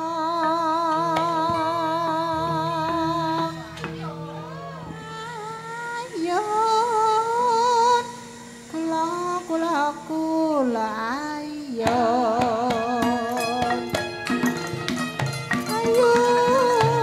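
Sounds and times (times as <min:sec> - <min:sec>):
drum strokes: 0:00.0 - 0:11.2, 0:11.8 - 0:17.0
woman singing: 0:00.0 - 0:17.0
struck gamelan notes: 0:11.8 - 0:17.0
sustained gamelan tones: 0:11.8 - 0:17.0.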